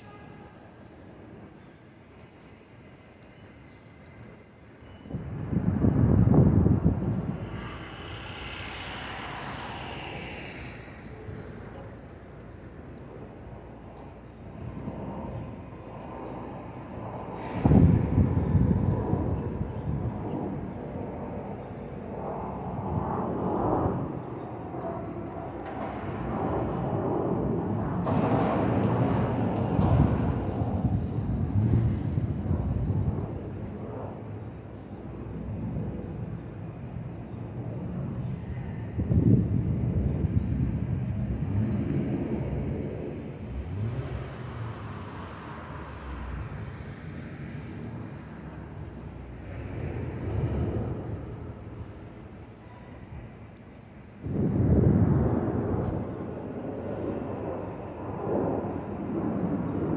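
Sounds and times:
jet airliner passing overhead: 0.0 - 59.9.

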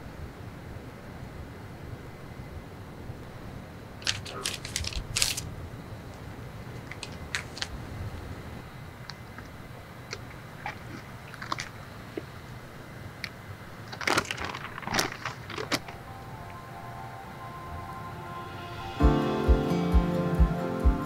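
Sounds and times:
paper crinkling: 4.0 - 5.5, 6.8 - 7.8, 13.9 - 16.0
soft music: 15.9 - 21.0.

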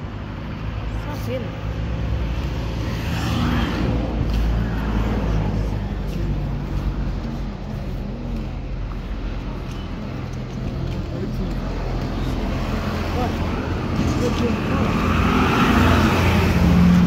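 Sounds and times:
street traffic: 0.0 - 17.0.

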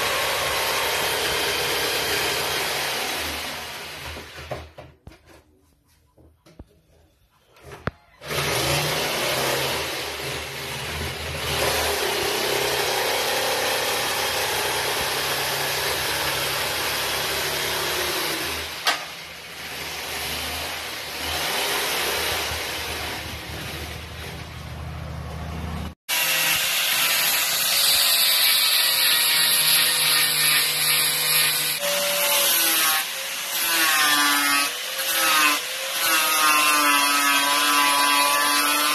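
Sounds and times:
jigsaw cutting wood: 0.0 - 4.7, 8.2 - 24.4, 26.1 - 38.9
angle grinder sanding wood: 26.1 - 38.9.

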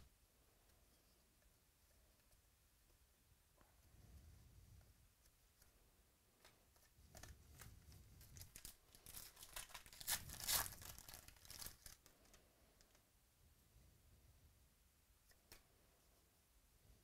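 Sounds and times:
foil wrapper crinkling: 8.3 - 12.9.

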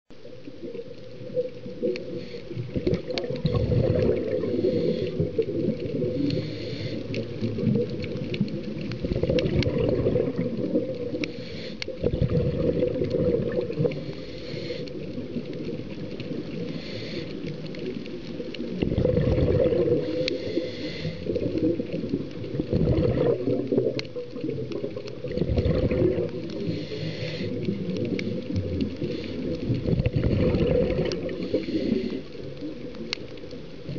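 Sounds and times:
exhaled bubbles rushing: 0.3 - 11.3, 11.9 - 14.4, 17.7 - 33.2
regulator inhale hiss: 1.8 - 7.6, 11.0 - 12.0, 13.8 - 15.4, 16.2 - 18.0, 19.8 - 21.9, 26.4 - 29.9, 31.1 - 32.8.

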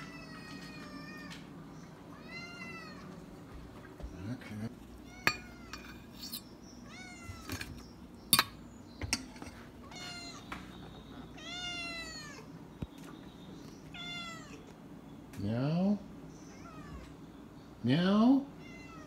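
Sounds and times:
cat meowing: 0.0 - 1.5, 2.1 - 3.2, 6.8 - 7.6, 11.4 - 12.5, 13.9 - 14.7, 16.5 - 17.2, 18.6 - 19.0
fork clinking on metal bowl: 5.2 - 6.4.

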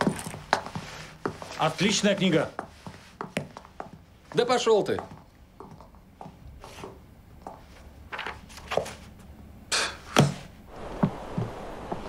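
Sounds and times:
book pages turning: 8.1 - 9.1.

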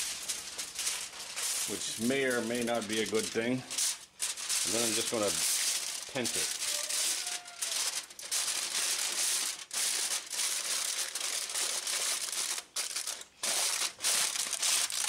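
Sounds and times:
aluminium foil crinkling: 0.0 - 15.0.

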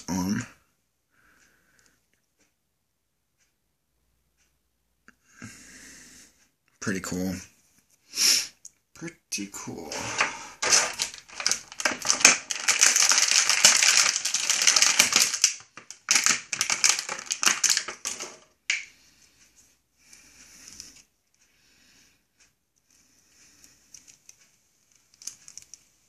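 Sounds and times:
plastic packaging crackling: 9.9 - 18.9.

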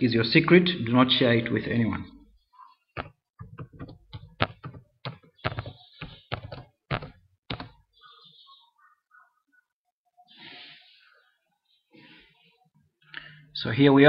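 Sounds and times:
keyboard typing: 3.0 - 7.8.

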